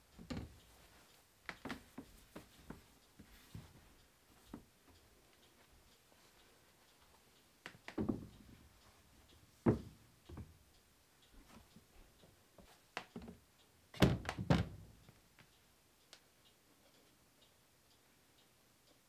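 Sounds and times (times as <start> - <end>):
cabinet flaps knocking shut: 14.0 - 14.8.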